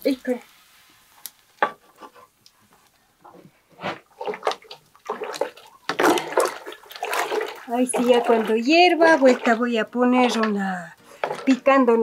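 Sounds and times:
water sloshing in a metal pot: 3.2s - 12.0s.

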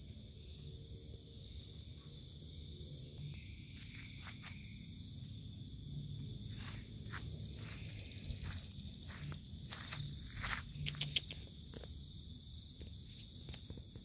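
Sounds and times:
night insects chirping: 0.0s - 14.0s
footsteps on sandy dirt: 3.6s - 4.9s, 6.2s - 11.2s.

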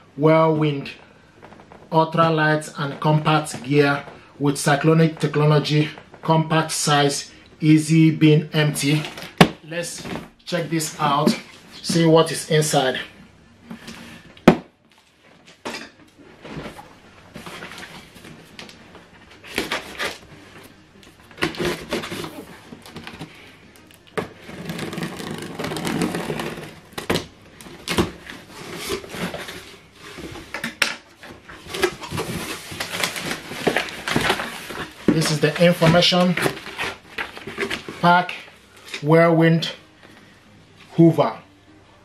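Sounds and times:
packaging rustling: 21.3s - 30.6s, 31.3s - 38.1s
cardboard scraping: 21.4s - 23.4s, 24.2s - 30.6s, 31.3s - 38.1s
packing tape cut with blade: 24.2s - 29.6s.

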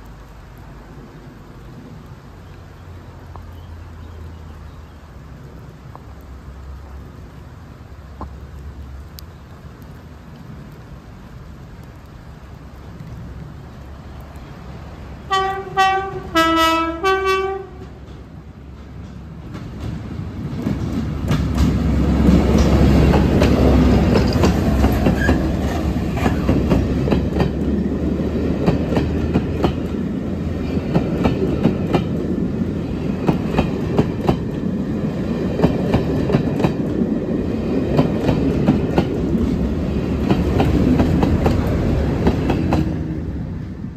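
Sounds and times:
diesel locomotive passing: 0.0s - 43.9s
two-tone train horn blasts: 15.3s - 17.9s
train wheels clicking over rail joints: 17.8s - 43.0s.

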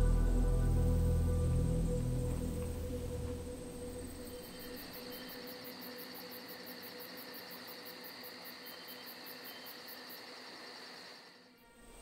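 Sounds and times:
crickets chirping: 0.0s - 12.0s
faint steady hum: 0.0s - 12.0s.

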